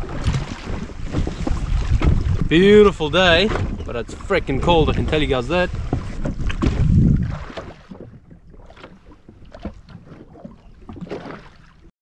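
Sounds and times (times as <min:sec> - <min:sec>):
wind gust on microphone: 0:00.0 - 0:08.2
water lapping against hull: 0:00.0 - 0:11.9.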